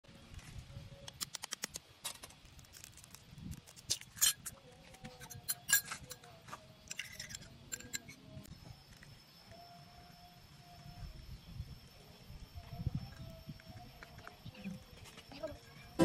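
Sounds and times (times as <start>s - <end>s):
spoon clinking against glass: 5.2s - 6.1s.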